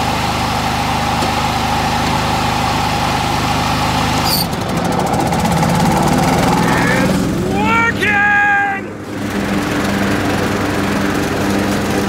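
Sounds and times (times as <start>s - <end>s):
mower cutting over sticks: 0.0s - 7.4s, 9.1s - 12.0s
lawn tractor engine running: 0.0s - 7.8s, 8.9s - 12.0s.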